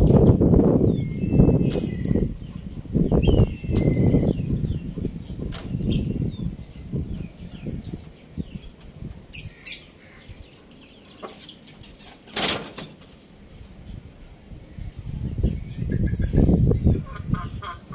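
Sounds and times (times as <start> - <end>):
small birds chirping: 0.0 - 17.9
wings fluttering: 5.5 - 6.2.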